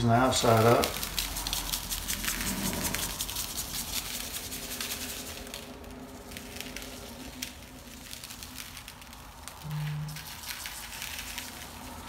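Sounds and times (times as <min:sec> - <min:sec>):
low steady hum: 0:00.0 - 0:12.0
seasoning granules pattering: 0:00.0 - 0:12.0.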